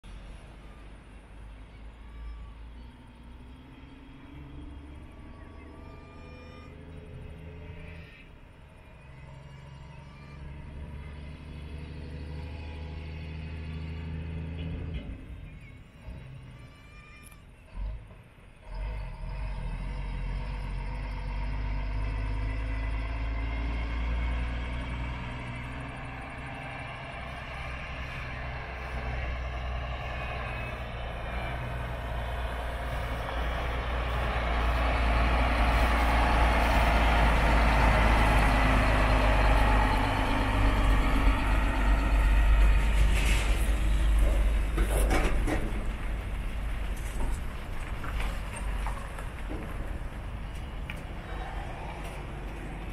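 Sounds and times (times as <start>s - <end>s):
truck diesel engine running: 17.7s - 52.9s.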